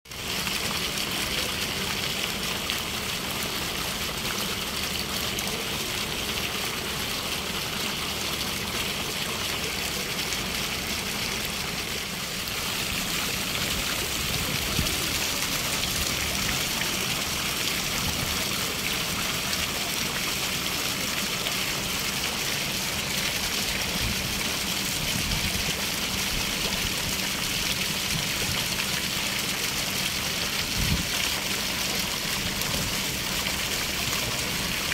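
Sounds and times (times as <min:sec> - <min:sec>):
fountain water splashing into pool: 0:00.1 - 0:34.9.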